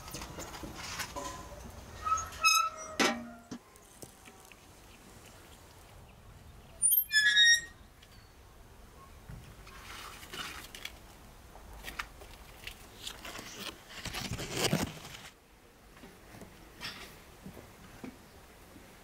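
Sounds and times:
high-pitched squeak: 2.0 - 3.4, 6.8 - 7.8.

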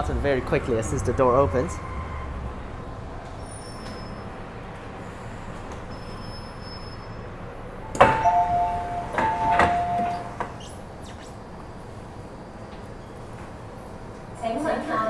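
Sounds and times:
train carriage hum: 1.8 - 15.0
two-tone door chime: 8.0 - 10.4.

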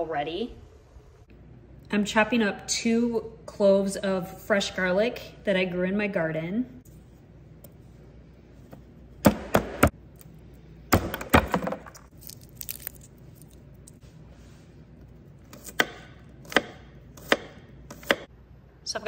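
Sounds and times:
knife chopping on wooden board: 15.5 - 18.3.

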